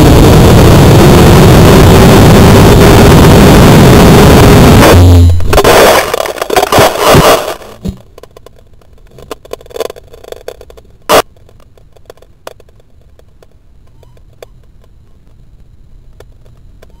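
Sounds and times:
faint clicks and crackles: 5.5s - 17.0s.

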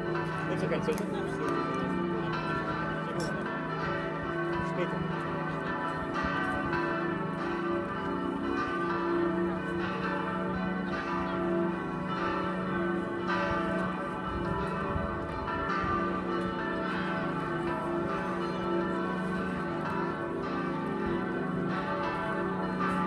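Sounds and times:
church bells ringing: 0.0s - 23.0s.

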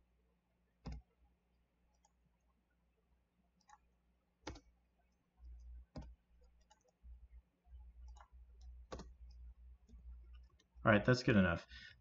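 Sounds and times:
faint low hum: 0.0s - 12.0s
computer mouse clicking: 0.8s - 1.1s, 3.6s - 4.7s, 5.4s - 7.0s, 8.0s - 10.7s.

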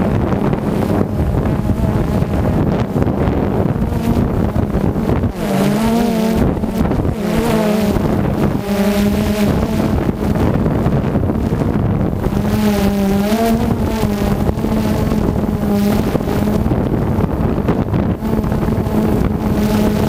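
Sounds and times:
drone motors humming: 0.0s - 20.0s
wind buffeting microphone: 0.0s - 20.0s.

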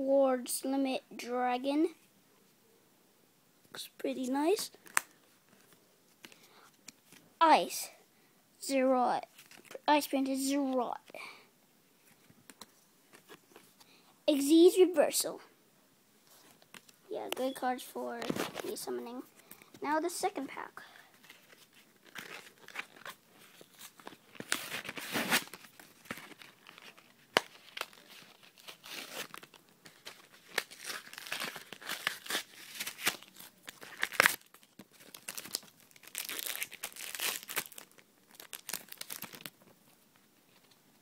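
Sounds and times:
foil wrapper tearing and crinkling: 21.2s - 39.6s.

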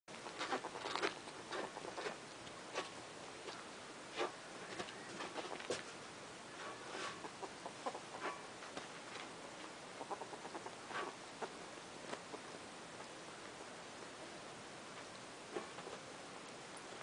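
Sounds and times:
ferrets clucking: 0.1s - 12.7s
ferrets scuffling: 0.1s - 14.2s.

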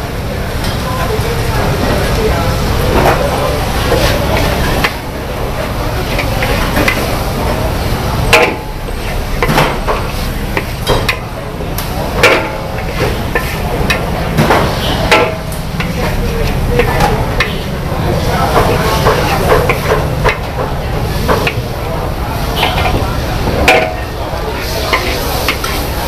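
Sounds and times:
metal spatula clanking in wok: 8.3s - 11.4s, 12.1s - 17.7s, 22.4s - 25.8s.

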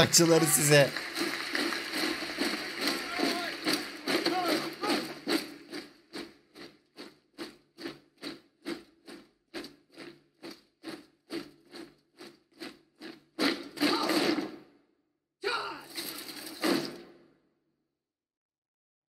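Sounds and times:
steady rhythmic beat: 0.0s - 6.3s.

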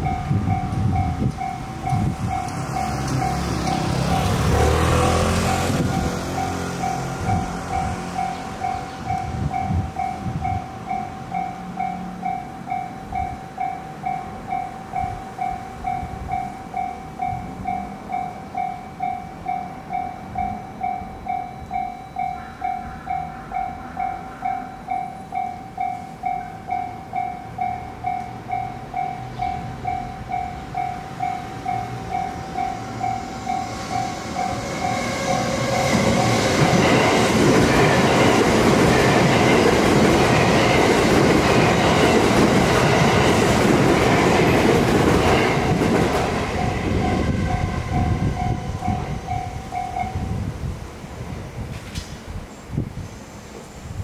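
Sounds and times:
railway crossing bell ringing: 0.0s - 50.5s
train rumble and wheel clatter: 0.0s - 54.0s.

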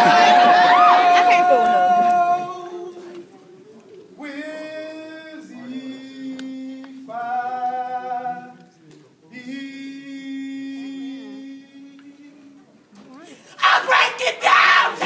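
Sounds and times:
women singing a cappella: 0.0s - 3.2s.

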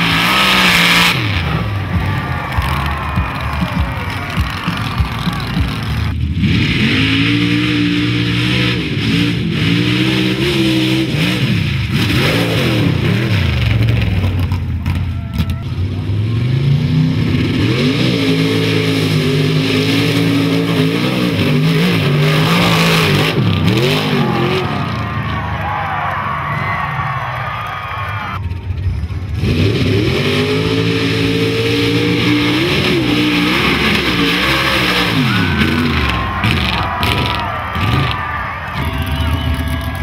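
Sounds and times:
truck engines revving: 0.0s - 40.0s
spinning tires throwing mud: 30.8s - 40.0s.

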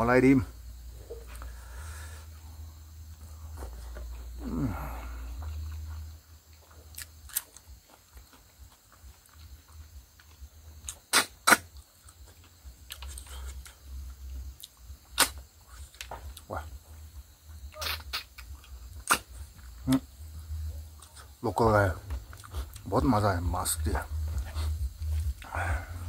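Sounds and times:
mouth clicks and smacks: 10.2s - 14.0s, 14.6s - 16.5s, 17.7s - 21.4s.

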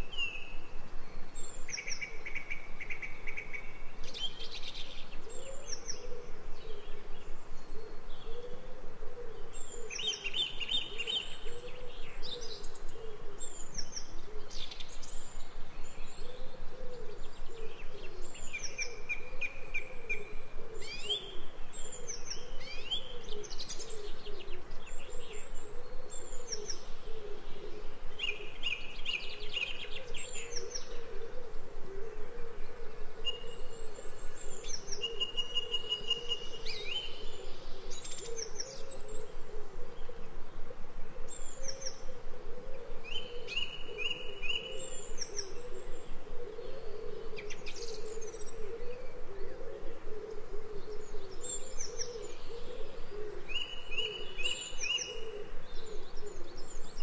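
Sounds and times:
songbirds singing and chirping: 0.0s - 57.0s.

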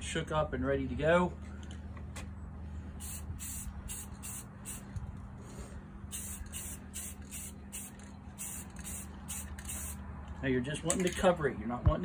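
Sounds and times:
aerosol spray paint hissing: 3.0s - 4.9s, 6.1s - 10.0s.

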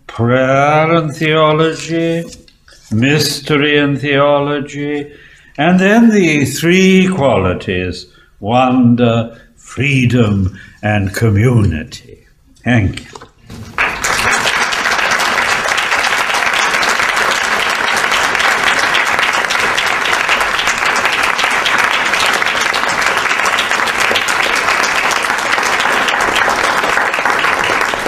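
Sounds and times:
audience applauding: 13.5s - 28.0s.

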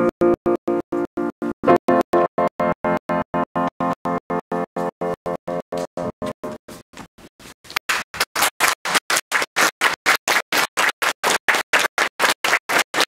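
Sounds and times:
audience applauding: 7.7s - 13.0s.

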